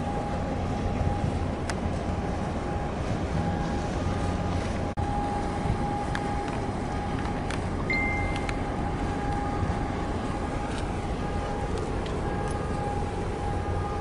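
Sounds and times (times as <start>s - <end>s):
boat engines rumbling: 0.0s - 14.0s
thin steady hum: 0.0s - 14.0s
short high beep: 7.9s - 8.6s.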